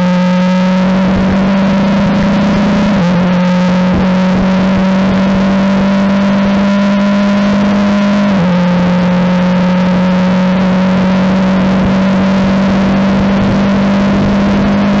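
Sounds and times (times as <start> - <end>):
gear upshift: 0.0 - 15.0
race car engine at full throttle: 0.0 - 15.0
wind and road noise: 0.0 - 15.0.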